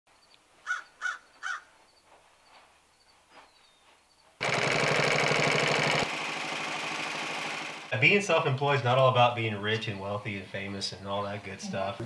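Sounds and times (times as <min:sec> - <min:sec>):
faint birdsong: 0:00.1 - 0:04.4, 0:08.2 - 0:12.0
harsh bird calls: 0:00.6 - 0:01.8
industrial sewing machine stitching: 0:04.4 - 0:07.9.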